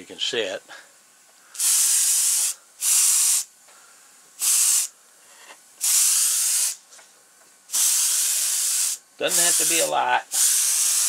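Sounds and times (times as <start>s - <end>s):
airbrush spraying: 1.6s - 3.5s, 4.4s - 4.9s, 5.8s - 6.8s, 7.7s - 11.0s.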